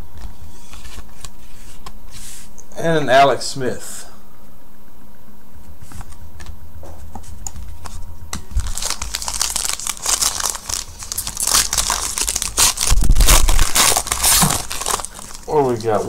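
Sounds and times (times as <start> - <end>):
card pack wrapper crinkling: 8.5 - 16.0.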